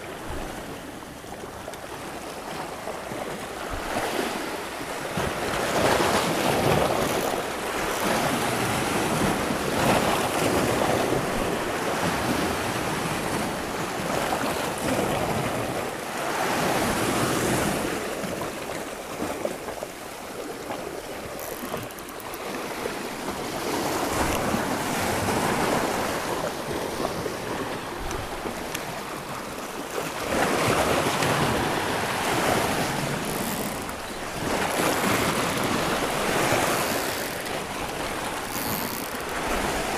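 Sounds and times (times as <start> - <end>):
sea waves washing against rocks: 0.0 - 39.9.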